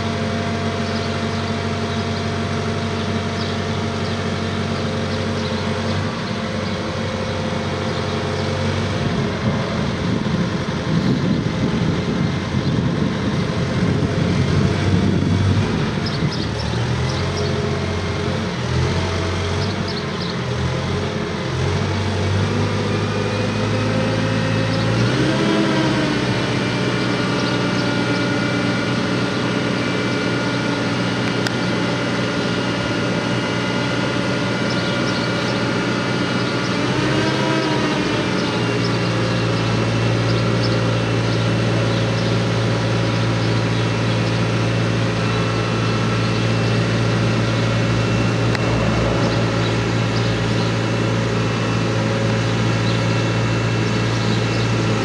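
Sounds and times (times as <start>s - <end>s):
diesel engine running: 0.0s - 55.0s
high whine: 45.2s - 55.0s.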